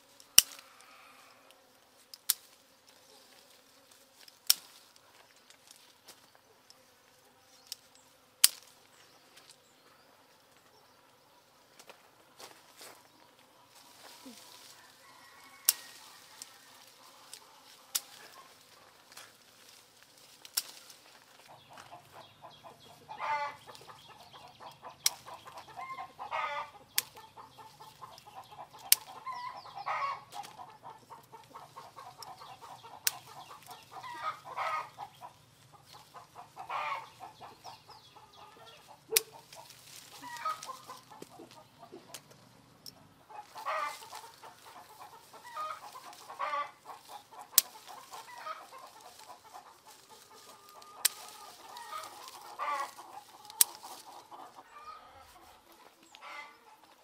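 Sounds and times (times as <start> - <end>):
hand shears snipping: 0.2 - 0.7, 4.2 - 4.8, 15.6 - 16.6, 17.2 - 18.5, 20.4 - 21.0, 24.6 - 25.6, 26.9 - 27.3, 28.7 - 29.2, 31.9 - 34.0, 39.1 - 41.4, 43.6 - 49.6, 50.7 - 54.1
chickens clucking: 12.4 - 57.0.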